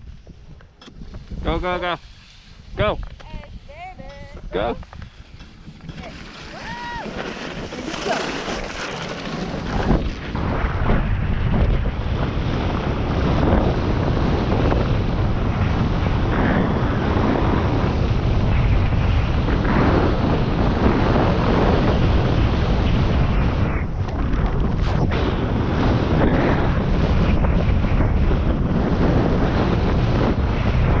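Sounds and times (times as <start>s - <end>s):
wind buffeting microphone: 0.0s - 31.0s
rushing water: 5.9s - 9.9s.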